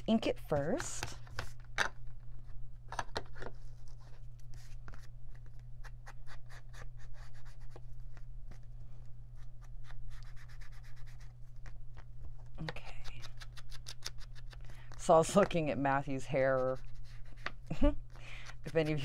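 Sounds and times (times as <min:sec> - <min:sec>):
foam tool dabbing and rubbing paper: 0:15.4 - 0:17.7, 0:18.6 - 0:19.0.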